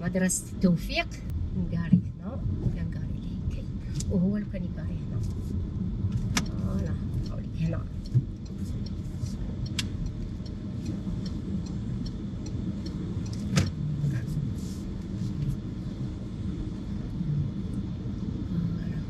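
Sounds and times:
engine and road noise rumble: 0:00.0 - 0:19.0.

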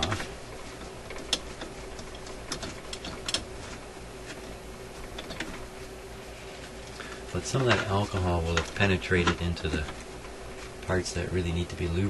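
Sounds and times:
cloth rubbing on metal: 0:00.0 - 0:11.2
faint steady hum: 0:00.0 - 0:12.0
small parts clicking: 0:01.1 - 0:03.5.

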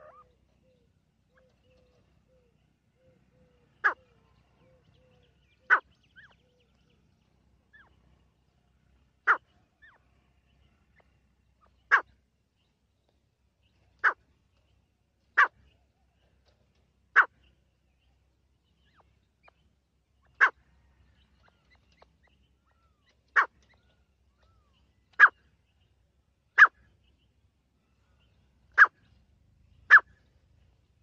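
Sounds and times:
bird calling sharp notes: 0:00.0 - 0:02.4, 0:28.8 - 0:29.0.

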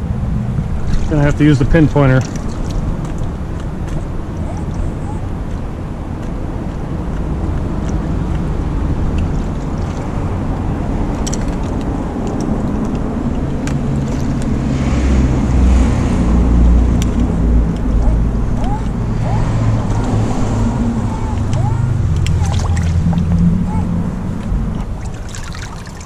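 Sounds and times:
river water rumbling: 0:00.0 - 0:26.0.

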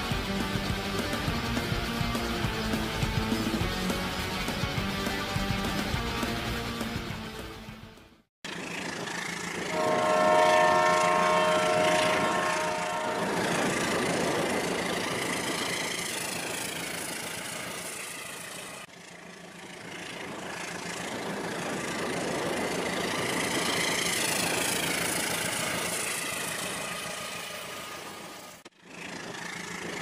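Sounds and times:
toy train rumble and whir: 0:08.5 - 0:09.8, 0:13.5 - 0:30.0.

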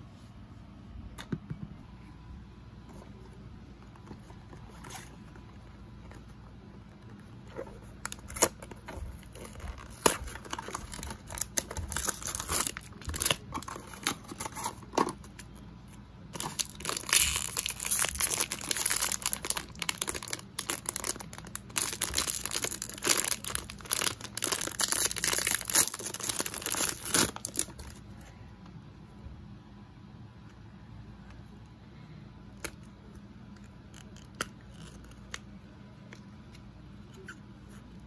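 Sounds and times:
plastic bag crinkling and tearing: 0:08.0 - 0:15.1, 0:16.3 - 0:28.0.

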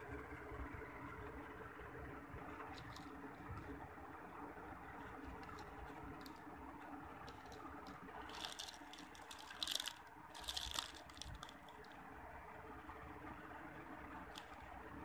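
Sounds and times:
faint steady background noise: 0:00.0 - 0:15.0
small clicks: 0:02.7 - 0:03.8, 0:05.0 - 0:06.4, 0:07.2 - 0:12.0, 0:14.3 - 0:14.7
plastic bags crinkling: 0:04.9 - 0:06.4, 0:07.2 - 0:11.9, 0:14.3 - 0:14.7.

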